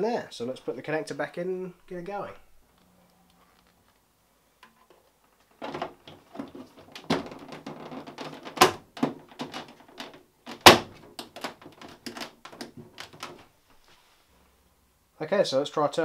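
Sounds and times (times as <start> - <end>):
plastic clicks knocks and rattles: 4.6 - 13.4.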